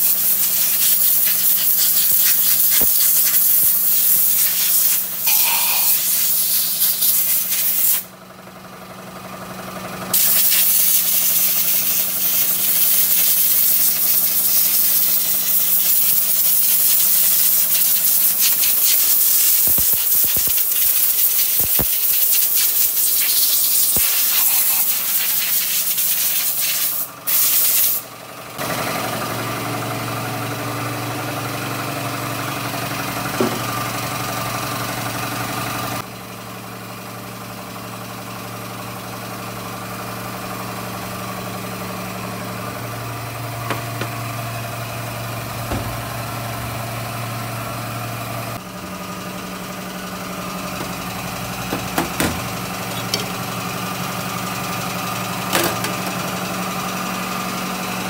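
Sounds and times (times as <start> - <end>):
diesel engine idling: 3.1 - 18.4, 28.0 - 58.0.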